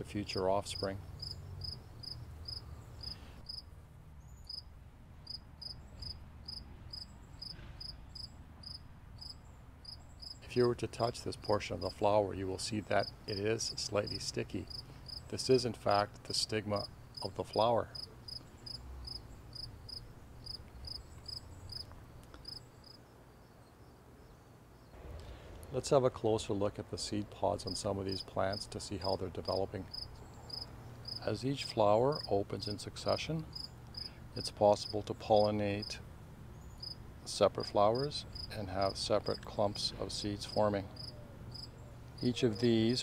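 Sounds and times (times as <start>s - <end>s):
cricket chirping: 1.2s - 3.6s, 4.4s - 4.6s, 5.2s - 10.4s, 18.0s - 24.0s, 29.9s - 31.2s, 33.5s - 34.1s, 36.6s - 37.0s, 41.0s - 41.7s.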